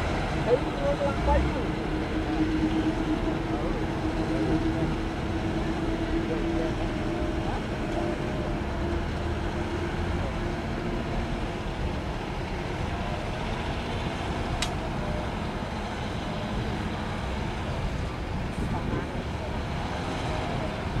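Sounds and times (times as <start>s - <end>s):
heavy diesel machinery running: 0.0s - 21.0s.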